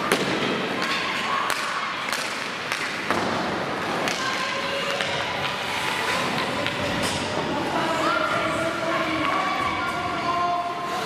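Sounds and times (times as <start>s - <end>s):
puck and players hitting boards: 0.0s - 7.8s
hockey sticks hitting puck: 0.0s - 11.0s.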